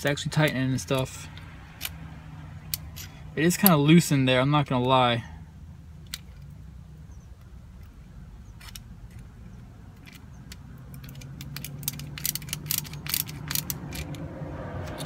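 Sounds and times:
hose clamp clicking: 9.9 - 14.2.

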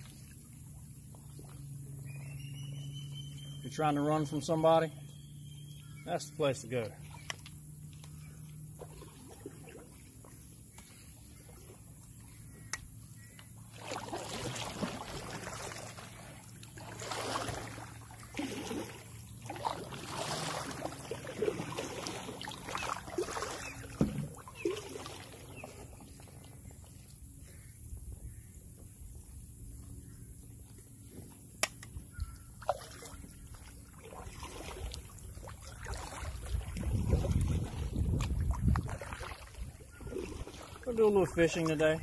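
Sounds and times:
paddle splashing in water: 6.7 - 27.2, 32.2 - 42.0.

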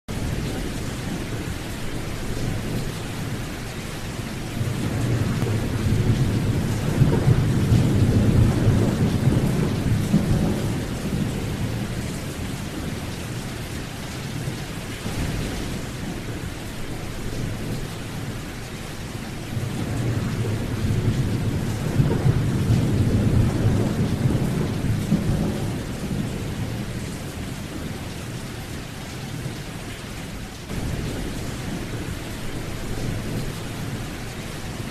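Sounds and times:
low thunder rolls: 0.1 - 28.4, 30.7 - 34.9
steady rain: 0.1 - 34.9.

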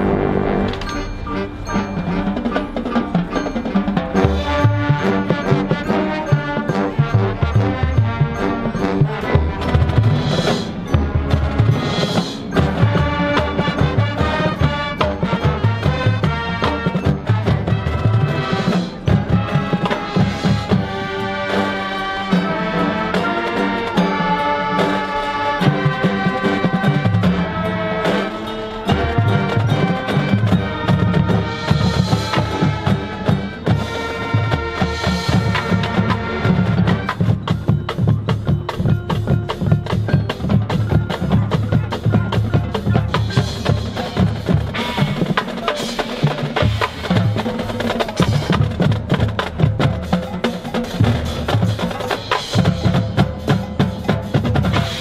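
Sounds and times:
marching band playing: 0.0 - 55.0
fast dense drum patterns: 0.8 - 24.4, 25.6 - 55.0.

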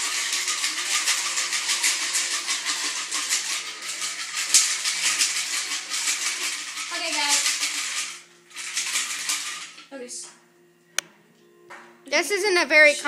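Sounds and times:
cocktail shaker rattling: 0.0 - 9.8.

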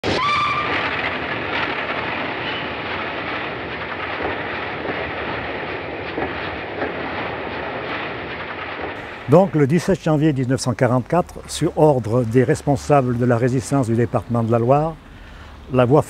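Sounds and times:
train rumble: 0.5 - 16.0.

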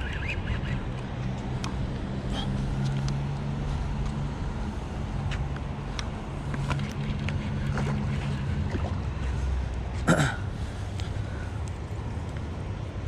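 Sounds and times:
low engine hum: 0.0 - 13.0
light ticks: 5.3 - 7.4, 10.9 - 12.5.

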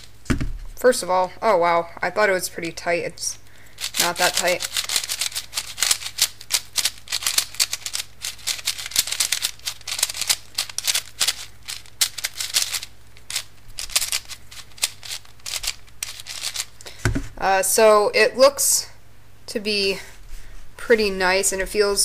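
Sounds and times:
speed cube plastic clicks: 3.8 - 16.8.

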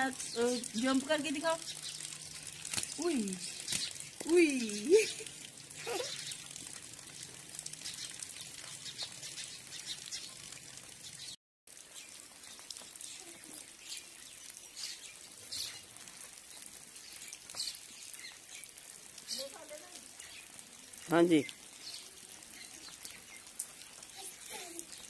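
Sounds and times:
rain pattering: 0.0 - 25.0.

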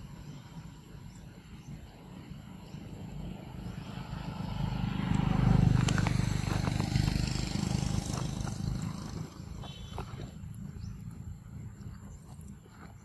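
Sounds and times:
vehicle engine passing: 2.1 - 12.4.

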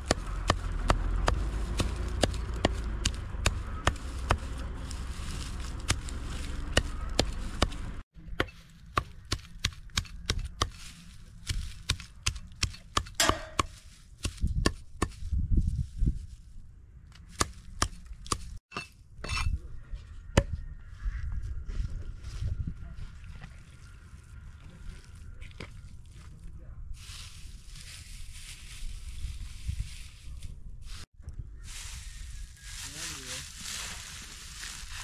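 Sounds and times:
cleaver chopping straw on wood: 0.0 - 4.7, 5.6 - 15.2, 17.2 - 18.6.

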